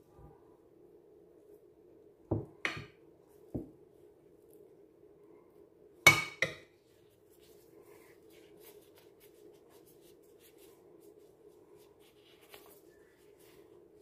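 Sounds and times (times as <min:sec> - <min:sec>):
low steady hum: 0:00.0 - 0:14.0
gloved hands rustling pastry: 0:06.7 - 0:14.0.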